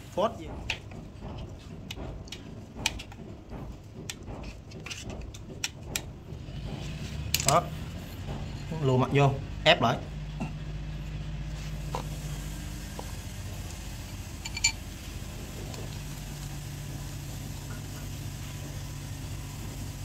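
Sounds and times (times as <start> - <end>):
low mechanical hum: 0.0 - 20.0
ringing metal clink: 14.4 - 14.8.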